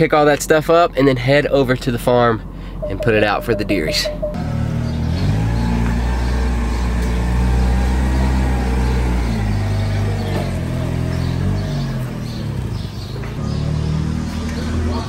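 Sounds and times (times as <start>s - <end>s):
forklift engine running: 2.4s - 13.6s.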